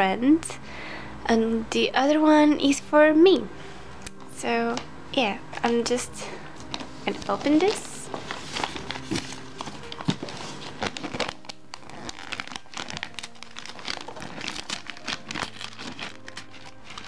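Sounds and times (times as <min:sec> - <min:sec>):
plastic wrapping crinkling: 0:05.5 - 0:17.0.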